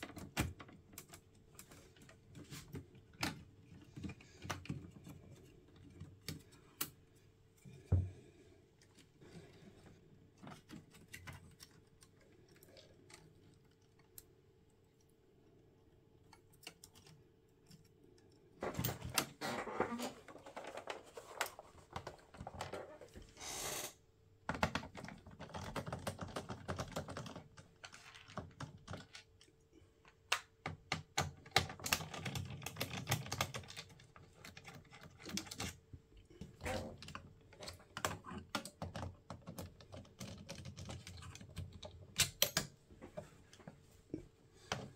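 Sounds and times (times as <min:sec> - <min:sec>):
plastic and metal parts rattling: 0:18.6 - 0:23.0, 0:24.5 - 0:29.5, 0:30.1 - 0:42.8.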